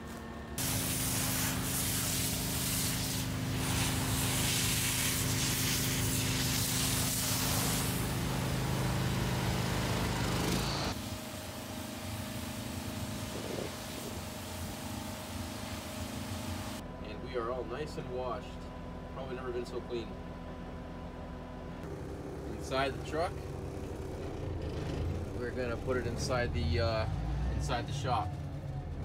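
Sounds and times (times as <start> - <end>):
engine hum: 0.0 - 29.0
pressure washer spraying metal: 0.6 - 16.8.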